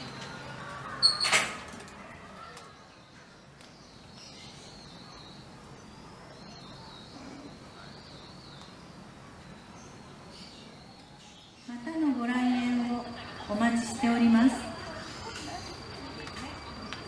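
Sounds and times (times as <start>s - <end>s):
faint bird chirping: 2.1s - 17.0s.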